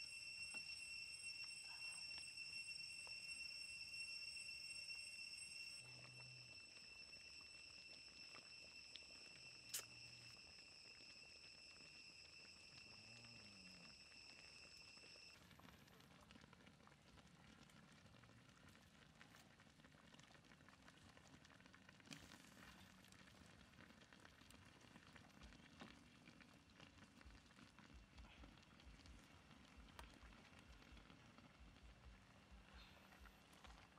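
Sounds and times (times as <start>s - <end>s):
high-pitched whine: 0.0s - 15.8s
curry simmering in a wok: 0.0s - 33.9s
wood fire crackling: 0.0s - 33.9s.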